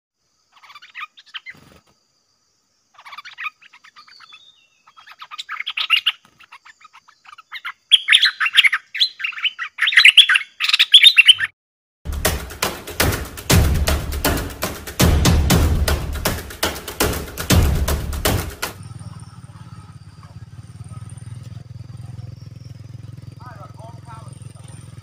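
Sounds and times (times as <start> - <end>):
bird warbling song: 0.5 - 1.8, 2.9 - 11.6, 18.8 - 25.0.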